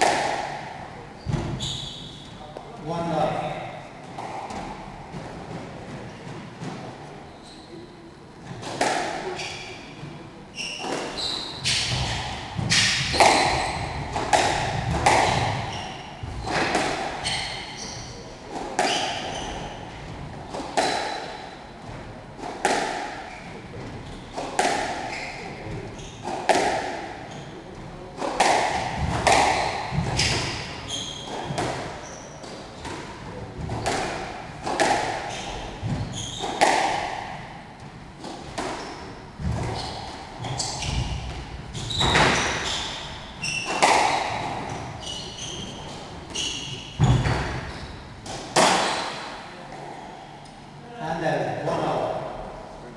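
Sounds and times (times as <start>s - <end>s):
squash ball hitting rackets: 0.0s - 1.6s, 8.5s - 17.9s, 18.5s - 49.5s
shoe squeaks on wooden floor: 1.2s - 2.4s, 7.3s - 7.9s, 9.3s - 19.9s, 25.0s - 26.3s, 29.6s - 32.5s, 35.2s - 36.6s, 38.7s - 43.9s, 44.6s - 48.1s.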